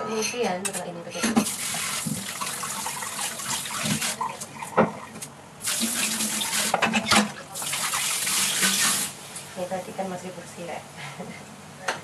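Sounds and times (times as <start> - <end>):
tap water running into sink: 1.4 - 9.1.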